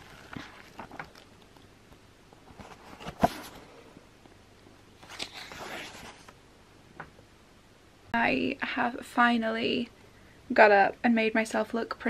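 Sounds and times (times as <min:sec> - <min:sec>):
book pages rustling: 0:00.0 - 0:01.6, 0:02.4 - 0:03.7, 0:05.0 - 0:06.4.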